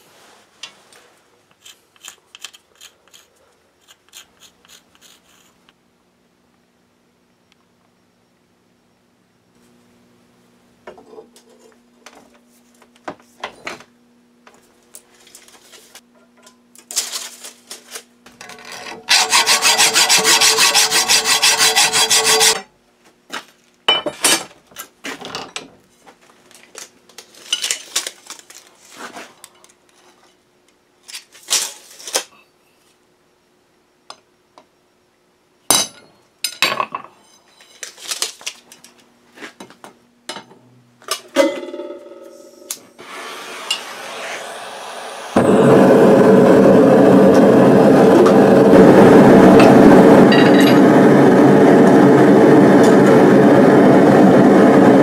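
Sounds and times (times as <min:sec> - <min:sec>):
saw cutting through steel: 0:19.0 - 0:22.6, 0:43.0 - 0:47.4.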